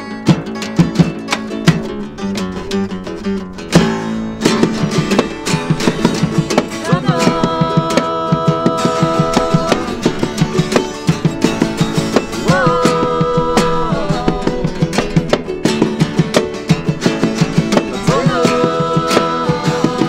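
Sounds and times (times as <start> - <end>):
acoustic bass guitar: 0.0 - 20.0
strummed twelve-string guitar: 0.0 - 20.0
person singing long note: 6.8 - 10.3, 12.4 - 15.0.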